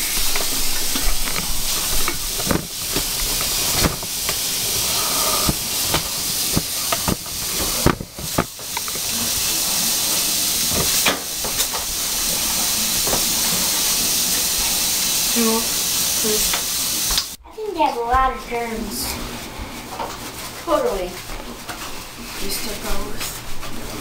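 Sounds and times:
faucet water running into sink: 0.0s - 17.4s
hands washing with splashes: 0.0s - 17.4s.

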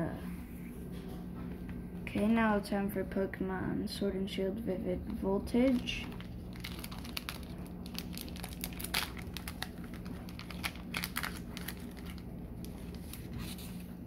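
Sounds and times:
foil wrapper crinkling and tearing: 5.6s - 13.9s.

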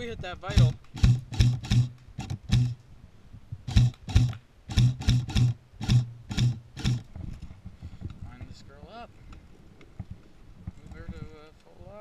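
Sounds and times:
airsoft rifle shots: 0.5s - 2.8s, 3.7s - 7.0s
gearbox buzz: 0.6s - 2.8s, 3.7s - 7.1s.

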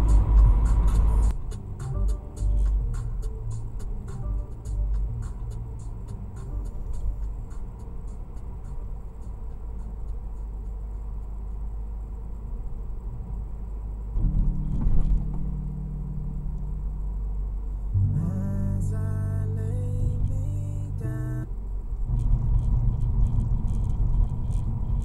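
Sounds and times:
steady pitched tones: 0.0s - 10.7s, 14.2s - 25.0s
road and engine rumble: 0.0s - 25.0s.

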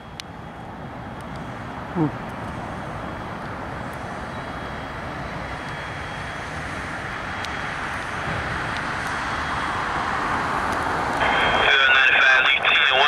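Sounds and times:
freight train cars rolling: 2.6s - 13.0s.

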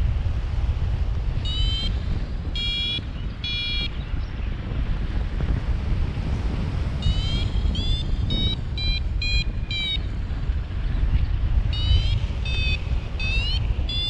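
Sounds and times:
wind noise on microphone: 0.0s - 14.0s
variometer beeping: 1.4s - 4.0s, 7.0s - 10.2s, 11.7s - 14.0s.

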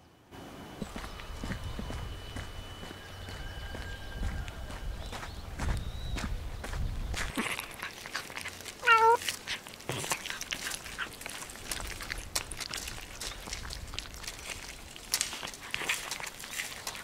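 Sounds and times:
cats chewing fish: 7.2s - 17.0s
cat meowing: 8.8s - 9.2s.

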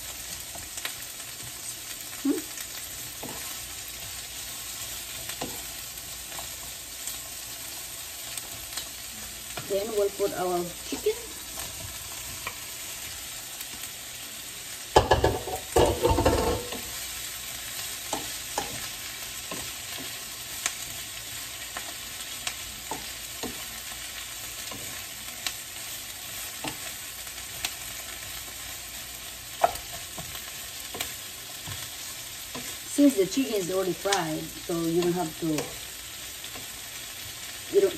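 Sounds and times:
onions sizzling in a frying pan: 0.0s - 37.9s
wooden spoon scraping a pan: 2.6s - 8.6s
food clattering into a pan: 14.9s - 16.9s.

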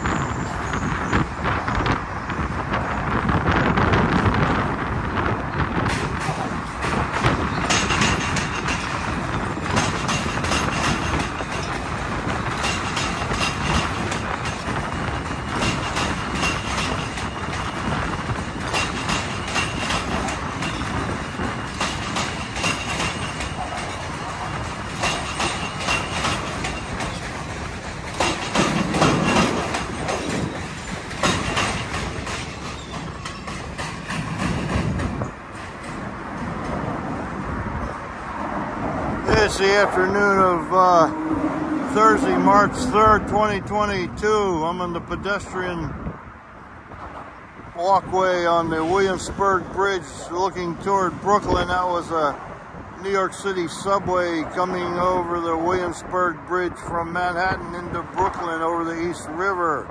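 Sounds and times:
wheels clacking over rail joints: 0.0s - 45.4s, 46.8s - 59.9s
subway train rumble: 0.0s - 59.9s.

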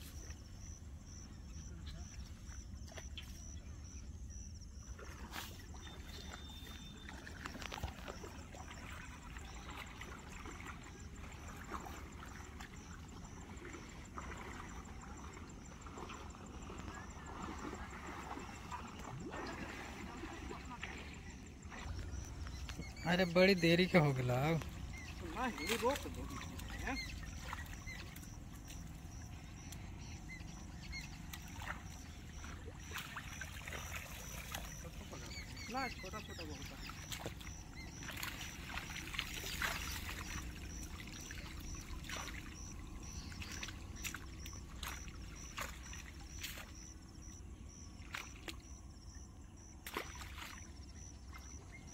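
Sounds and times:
water sloshing and splashing: 0.0s - 51.9s
steady low rumble: 20.0s - 23.0s.

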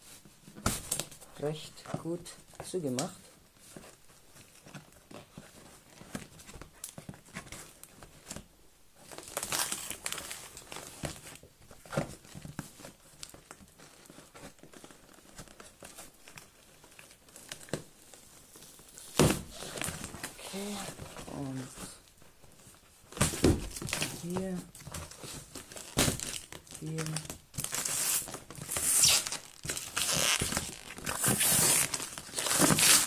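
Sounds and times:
blade scraping tape and cardboard: 27.8s - 33.0s.

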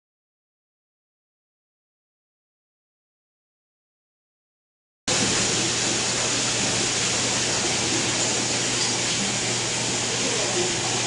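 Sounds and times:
rushing water-like noise: 5.1s - 11.0s.

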